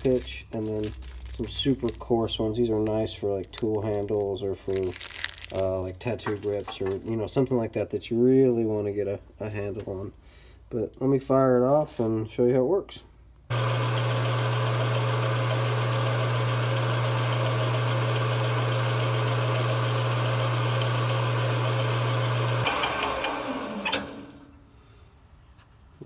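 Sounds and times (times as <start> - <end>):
lathe motor humming: 13.5 - 24.5.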